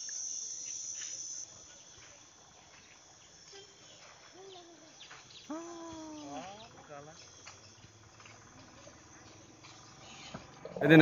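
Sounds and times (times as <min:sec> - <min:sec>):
insect buzzing: 0:00.0 - 0:10.8
faint forest ambience: 0:00.0 - 0:11.0.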